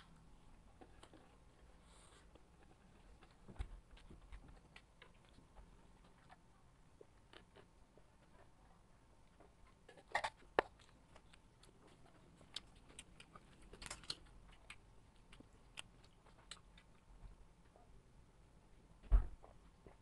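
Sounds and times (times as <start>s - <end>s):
chewing crunches: 2.3s - 8.6s, 9.3s - 17.1s.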